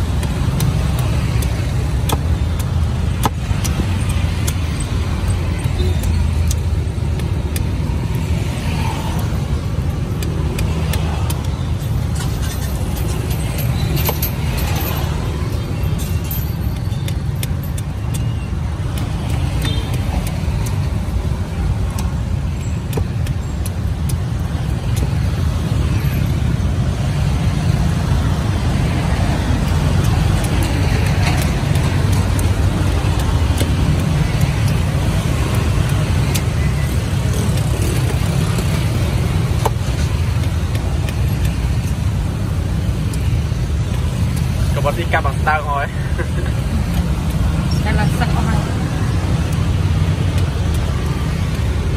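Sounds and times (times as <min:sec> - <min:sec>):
knife chopping coconut husk: 0:00.0 - 0:04.6.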